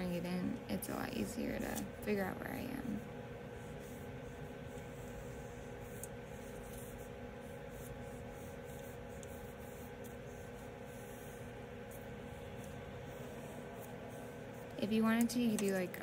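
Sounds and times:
steady low hum: 0.0s - 16.0s
pencil scratching on paper: 3.6s - 15.2s.

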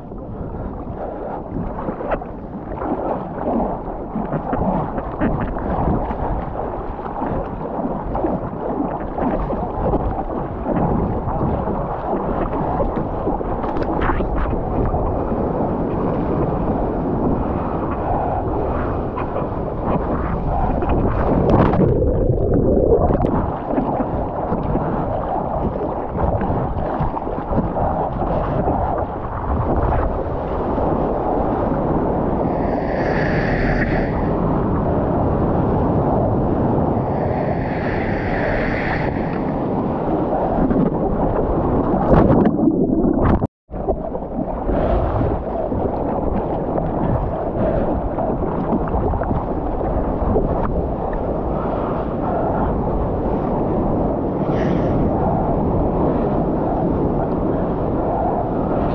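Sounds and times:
wind buffeting microphone: 0.0s - 58.9s
water rushing and splashing: 19.2s - 35.4s, 36.0s - 49.4s.

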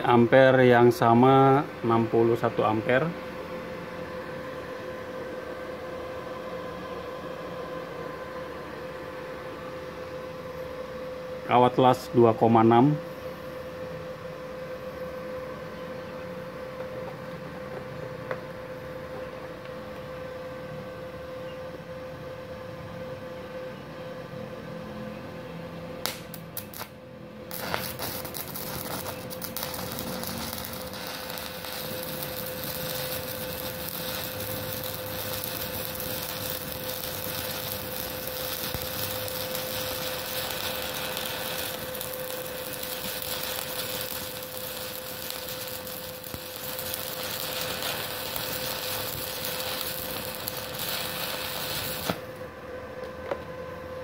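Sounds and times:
welder hum and whine: 0.0s - 54.0s
welding arc crackling hiss: 26.0s - 52.4s
electrode striking crackles: 27.5s - 52.2s.

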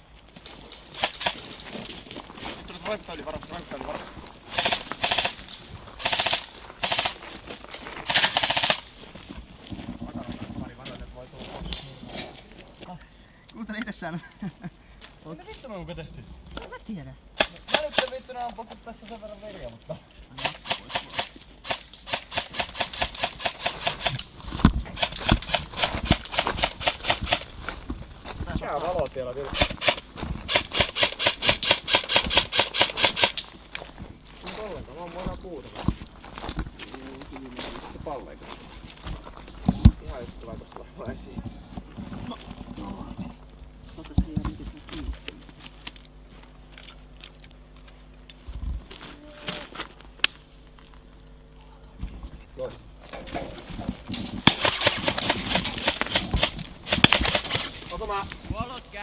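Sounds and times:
boots crunching on gravel: 0.0s - 8.2s, 25.7s - 30.7s, 33.4s - 47.8s
faint steady hum: 0.0s - 59.0s
airsoft gun shots: 4.5s - 5.4s, 6.0s - 7.2s, 8.0s - 8.8s, 17.4s - 18.1s, 20.4s - 24.2s, 25.0s - 27.5s, 29.6s - 33.4s, 54.4s - 57.8s.

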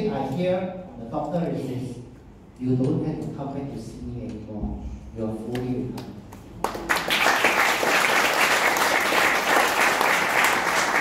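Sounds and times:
audience applauding: 6.6s - 11.0s.

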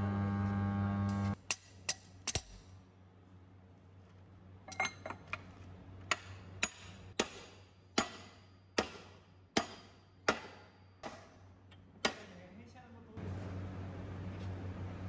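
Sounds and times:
hammer striking metal: 6.1s - 11.4s.

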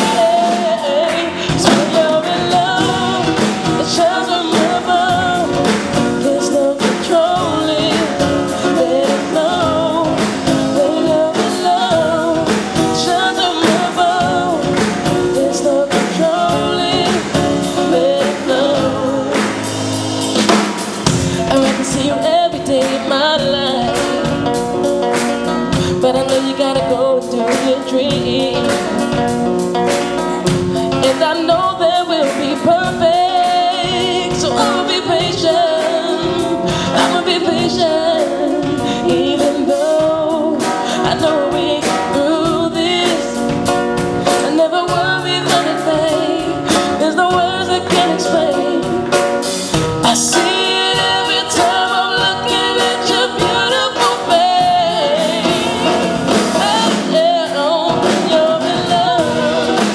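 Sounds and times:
man singing lead: 0.0s - 19.9s, 21.1s - 24.8s, 25.6s - 29.4s, 30.4s - 59.9s
bass guitar: 0.0s - 59.9s
drums: 0.0s - 59.9s
woman's backing vocal: 50.0s - 59.9s.

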